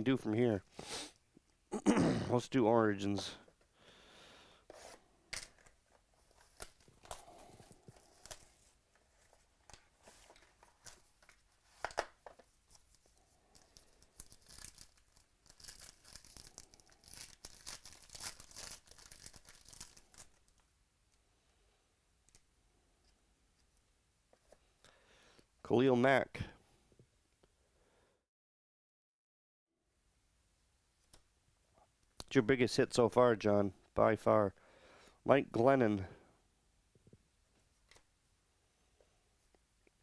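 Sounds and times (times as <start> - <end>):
cards being handled: 4.7 - 20.6
foil crinkling: 12.8 - 20.6
wrapper tearing and crinkling: 13.6 - 20.6.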